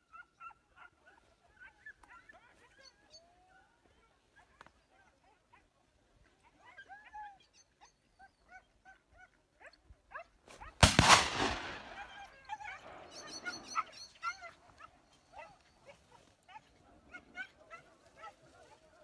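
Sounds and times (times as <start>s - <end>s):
dogs barking: 0.0s - 3.2s, 8.4s - 19.0s
gunshot echoing: 10.8s - 13.6s.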